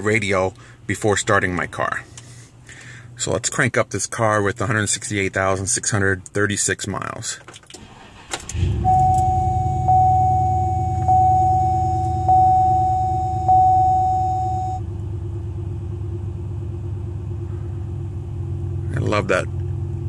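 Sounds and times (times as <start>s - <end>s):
car engine starting and idling: 7.0s - 20.0s
car warning chime dings: 8.7s - 14.8s.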